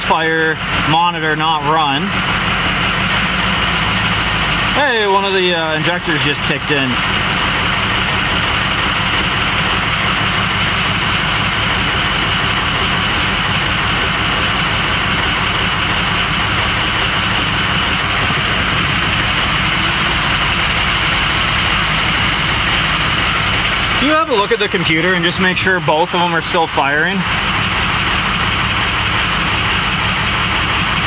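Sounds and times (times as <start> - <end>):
diesel engine idling: 0.0 - 31.0.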